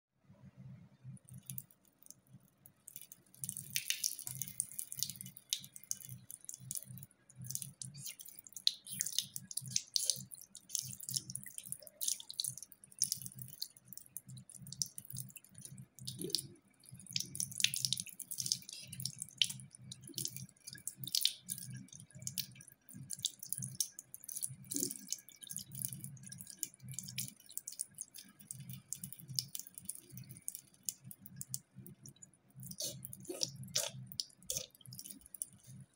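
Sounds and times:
water dripping into ceramic sink: 0:01.1 - 0:35.9
cat lapping water: 0:01.3 - 0:35.9.

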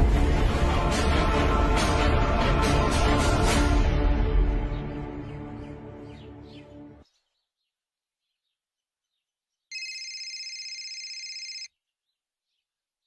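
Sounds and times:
electronic phone ringtone: 0:09.7 - 0:11.7.

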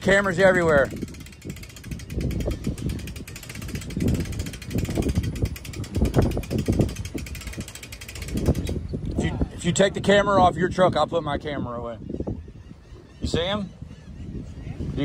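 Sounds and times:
winch pawl clicking: 0:00.2 - 0:09.2.

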